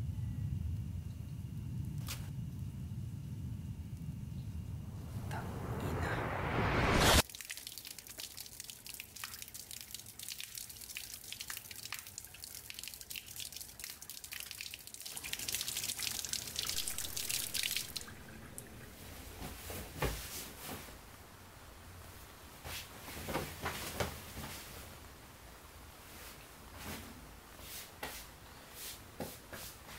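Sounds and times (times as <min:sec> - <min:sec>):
loud rising swell: 0:02.9 - 0:07.2, 0:16.3 - 0:19.9
tap water running over hands: 0:07.3 - 0:20.2.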